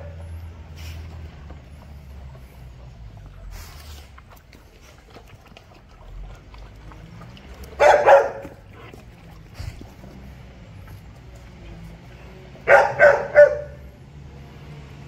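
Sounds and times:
puppies crunching food: 0.0s - 12.6s
dog barking: 7.8s - 8.9s, 12.6s - 13.9s.

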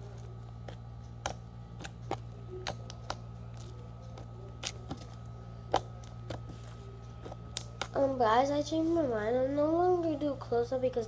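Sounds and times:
steady low hum: 0.0s - 11.0s
slime clicking and popping: 0.6s - 5.1s.

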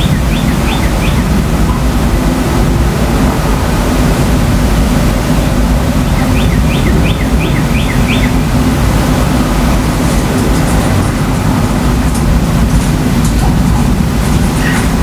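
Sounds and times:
bird chirping: 0.0s - 1.8s, 6.0s - 8.4s.

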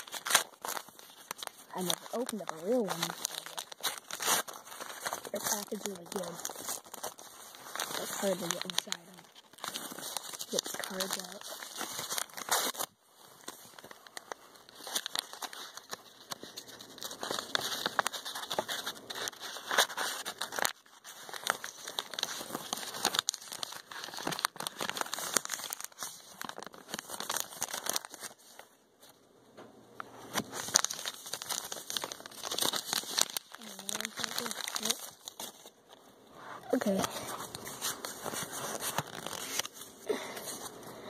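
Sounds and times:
foil wrapper crinkling and tearing: 0.0s - 29.2s, 30.0s - 41.0s.

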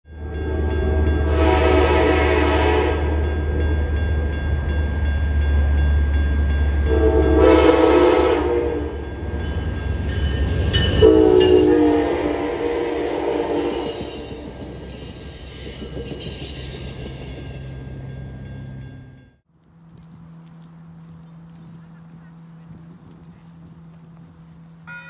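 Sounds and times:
train rumbling: 0.1s - 25.0s
locomotive air horn blasts: 0.4s - 3.2s, 6.9s - 9.0s, 10.9s - 14.5s.

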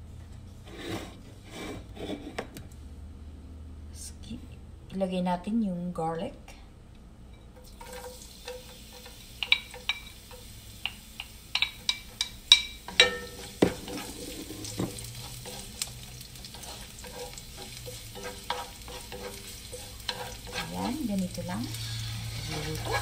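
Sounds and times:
garlic sizzling in oil: 7.6s - 23.0s
utensil tapping plate and pan: 7.7s - 15.6s.

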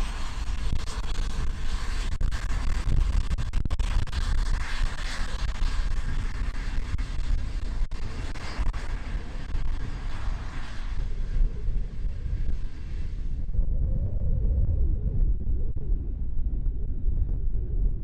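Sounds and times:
wind buffeting microphone: 4.8s - 18.0s.

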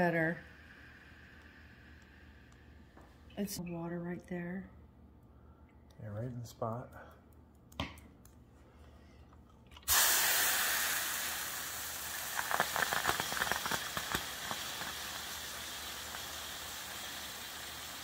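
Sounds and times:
steam iron hissing and sizzling: 9.9s - 18.0s.

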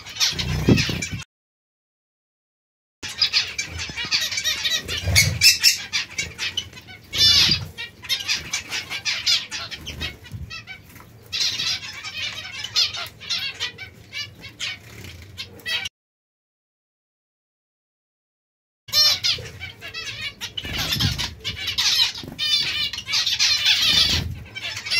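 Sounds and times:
finches chattering: 0.0s - 1.2s, 3.0s - 15.8s, 18.9s - 24.9s
wings fluttering: 0.0s - 1.2s, 3.2s - 11.8s, 14.4s - 15.7s, 20.6s - 24.9s.

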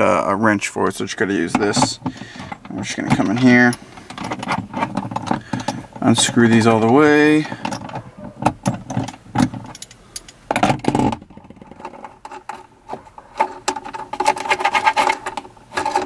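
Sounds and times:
wrench clicking on metal bolts: 1.6s - 12.7s.

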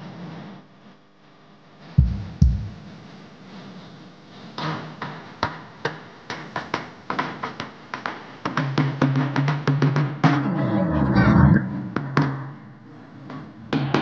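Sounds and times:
sharp drum strikes: 2.0s - 3.0s.

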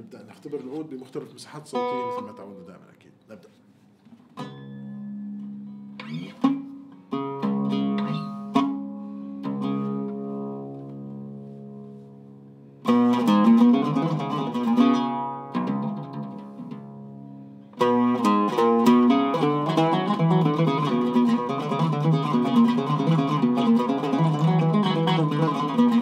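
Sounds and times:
oud plucked notes: 0.0s - 3.0s, 4.3s - 26.0s.

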